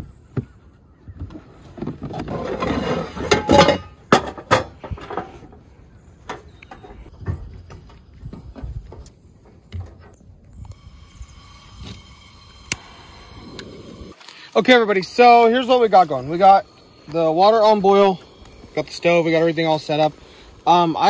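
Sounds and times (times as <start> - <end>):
stove scraping plastic tote: 1.7 - 3.8.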